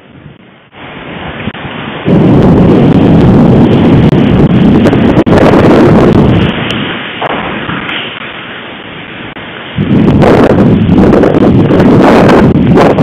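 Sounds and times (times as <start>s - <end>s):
thunderstorm rush and rumble: 0.0s - 13.0s.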